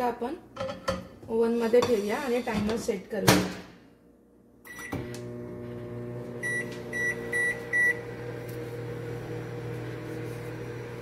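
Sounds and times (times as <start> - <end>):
microwave oven humming: 4.6 - 11.0.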